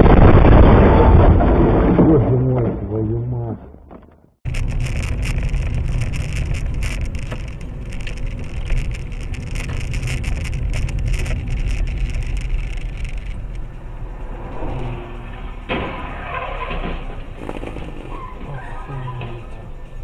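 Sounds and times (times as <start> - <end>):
engine and road rumble: 0.0 - 20.0
small clicks and crackles: 4.5 - 13.8.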